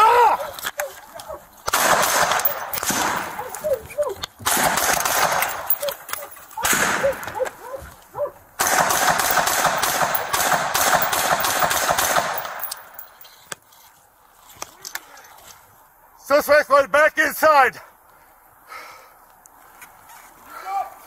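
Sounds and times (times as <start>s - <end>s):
rapid rifle gunfire: 1.7s - 3.4s, 4.5s - 5.7s, 8.6s - 12.7s.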